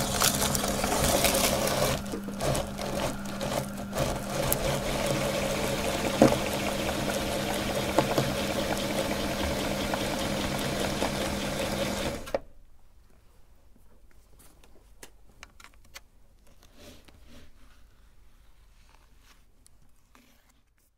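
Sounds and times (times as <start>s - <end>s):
meat grinder humming: 0.0s - 12.4s.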